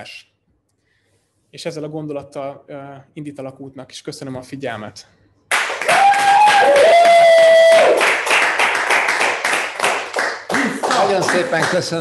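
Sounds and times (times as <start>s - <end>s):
hands clapping in applause: 5.5s - 12.0s
people cheering: 5.7s - 9.3s.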